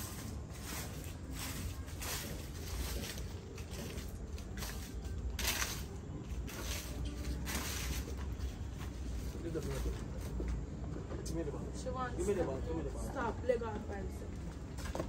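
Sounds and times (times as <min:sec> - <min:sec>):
rake scraping grass and dirt: 0:00.0 - 0:10.5.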